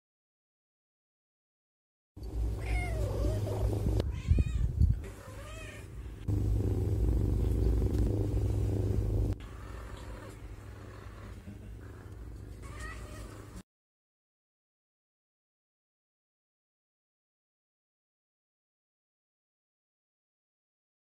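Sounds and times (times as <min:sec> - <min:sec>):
cat purring: 0:02.2 - 0:04.0, 0:05.0 - 0:13.6
cat meowing: 0:02.6 - 0:05.9, 0:12.6 - 0:13.6.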